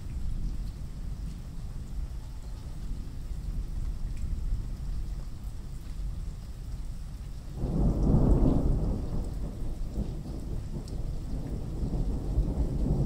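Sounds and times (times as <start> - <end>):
rain: 0.0 - 13.0
thunder rolling: 7.6 - 13.0.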